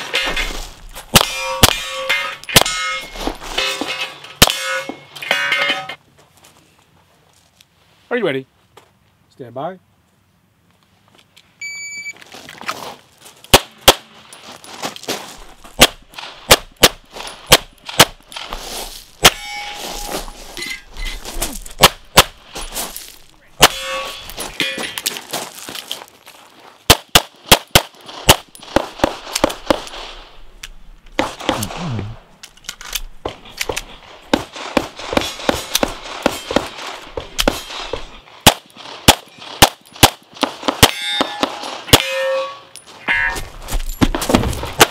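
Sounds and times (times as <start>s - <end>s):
steel targets ringing: 0.0s - 6.0s, 19.2s - 21.0s, 23.6s - 25.1s, 40.8s - 43.6s
pistol shots: 1.1s - 3.0s, 15.8s - 18.2s, 21.8s - 22.4s, 26.9s - 30.0s, 33.3s - 37.8s, 38.4s - 42.1s
shot timer beep: 11.6s - 12.2s.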